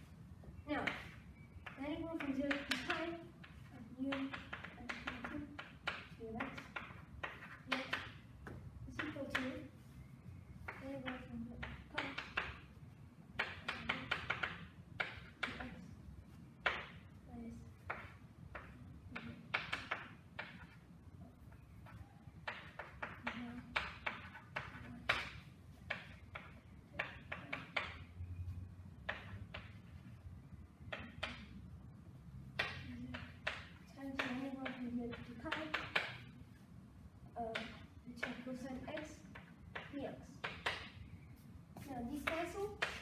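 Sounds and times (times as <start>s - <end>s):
low room hum: 0.0s - 43.0s
chalk tapping on chalkboard: 0.7s - 10.0s, 10.6s - 20.8s, 21.5s - 28.4s, 29.0s - 30.2s, 30.8s - 31.6s, 32.5s - 36.6s, 37.5s - 43.0s
chalk scratching on blackboard: 41.4s - 43.0s.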